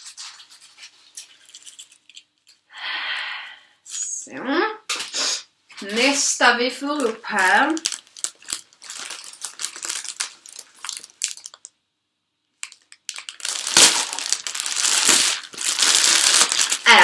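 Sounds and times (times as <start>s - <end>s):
plastic bag crinkling: 0.0s - 2.7s, 5.7s - 11.8s, 12.6s - 17.0s.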